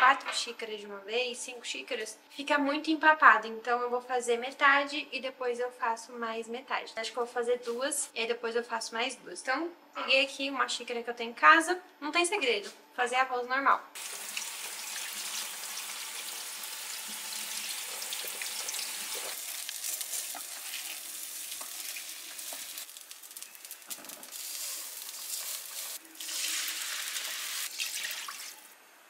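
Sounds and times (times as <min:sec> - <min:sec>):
rice sizzling in a hot pot: 0:14.0 - 0:28.8.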